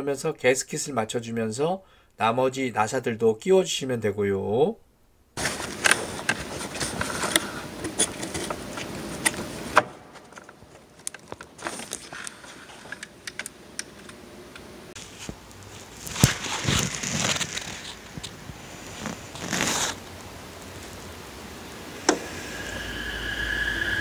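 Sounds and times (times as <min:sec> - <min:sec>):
hands rustling: 0:15.0 - 0:20.1.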